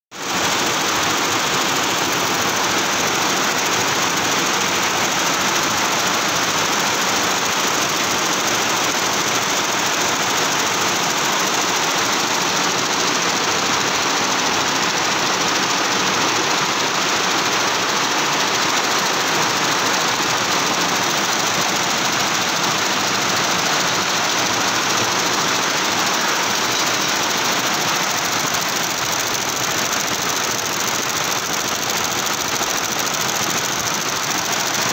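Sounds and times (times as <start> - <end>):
embroidery machine stitching drone: 0.2 - 34.9.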